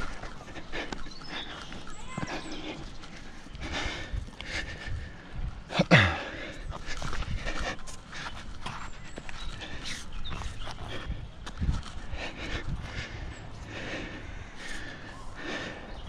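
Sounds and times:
person panting hard: 0:00.0 - 0:16.0
loud grunt: 0:05.7 - 0:06.3.

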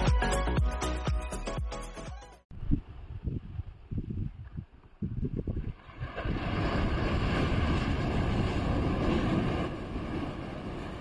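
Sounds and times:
wind buffeting microphone: 0:02.5 - 0:11.0
waves breaking on rocks: 0:05.7 - 0:11.0.

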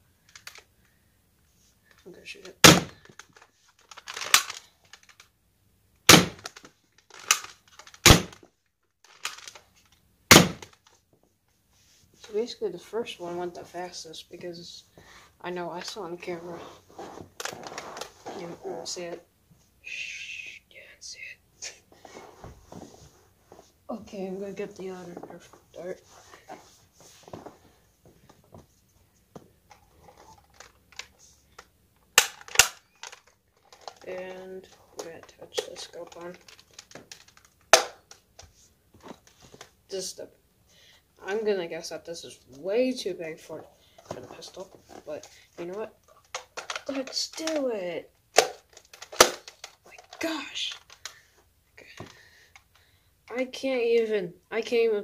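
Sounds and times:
loud sharp plastic snaps: 0:00.2 - 0:00.6, 0:02.5 - 0:05.3, 0:06.0 - 0:11.0, 0:30.4 - 0:34.0, 0:35.6 - 0:38.5, 0:48.3 - 0:51.2
dart pistol cocking and firing: 0:02.6 - 0:03.0, 0:06.1 - 0:06.6, 0:07.2 - 0:08.4, 0:10.3 - 0:10.7
plastic toy clicks and rattles: 0:03.0 - 0:05.3, 0:06.4 - 0:08.4, 0:09.0 - 0:10.0, 0:30.0 - 0:34.2, 0:35.0 - 0:38.5, 0:44.5 - 0:47.7, 0:48.3 - 0:51.2.

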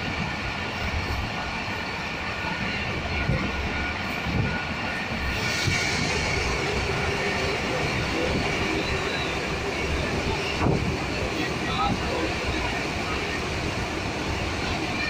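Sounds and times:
train wheels rumbling on track: 0:00.0 - 0:15.0
hiss: 0:05.2 - 0:11.2.

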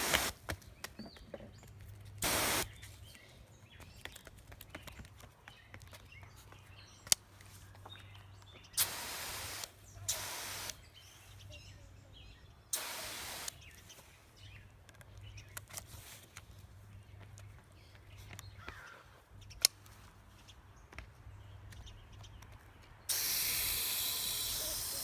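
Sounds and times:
hose nozzle spraying water: 0:00.0 - 0:00.4, 0:02.2 - 0:02.7, 0:08.8 - 0:10.8, 0:12.7 - 0:13.6, 0:23.1 - 0:25.0.

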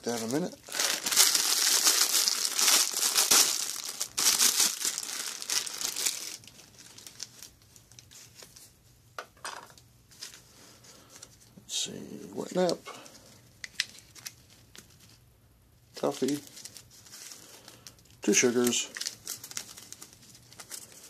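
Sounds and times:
plastic bag crinkling and tearing: 0:00.0 - 0:08.2, 0:16.0 - 0:21.0.

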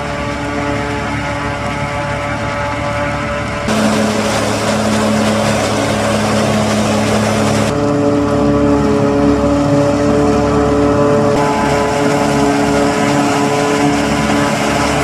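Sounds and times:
forage harvester engine and chopping: 0:03.4 - 0:15.0.

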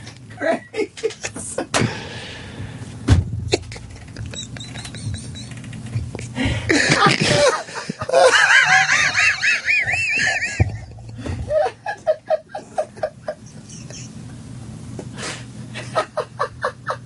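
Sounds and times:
man laughing helplessly: 0:03.5 - 0:14.2, 0:15.8 - 0:17.0
high-pitched squealing laughs: 0:03.7 - 0:10.9.

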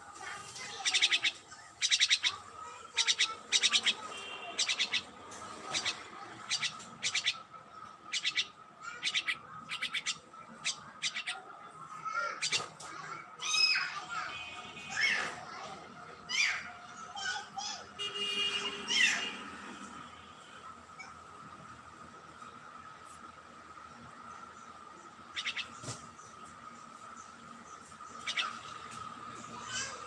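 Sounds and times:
bird harsh rasping calls: 0:00.6 - 0:11.5, 0:12.1 - 0:12.8, 0:25.3 - 0:25.8, 0:28.1 - 0:28.8.

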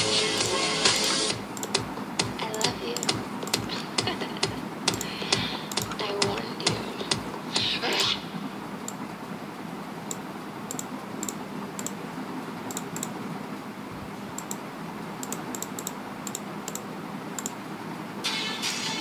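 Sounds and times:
music: 0:00.0 - 0:01.4, 0:18.2 - 0:19.0
steady hiss and low hum: 0:00.0 - 0:19.0
computer mouse clicks: 0:00.4 - 0:03.7, 0:04.9 - 0:08.1, 0:10.1 - 0:12.0, 0:12.7 - 0:13.2, 0:14.4 - 0:14.6, 0:15.2 - 0:17.6.

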